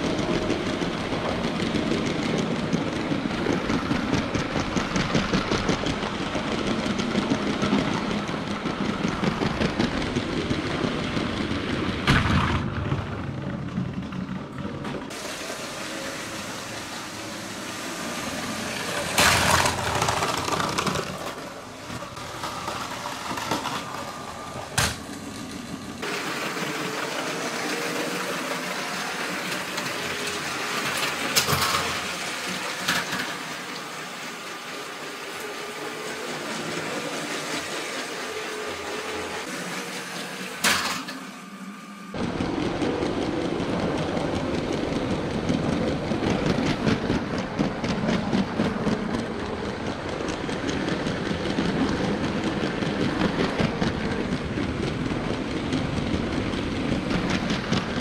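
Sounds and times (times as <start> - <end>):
toy train motor and wheels: 15.1 - 25.3, 26.0 - 41.2.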